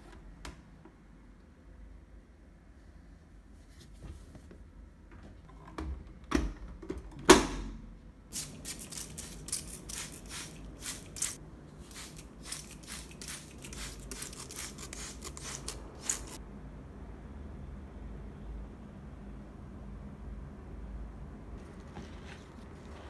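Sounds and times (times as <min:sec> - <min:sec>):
spray bottle squirting water: 0:08.3 - 0:16.4.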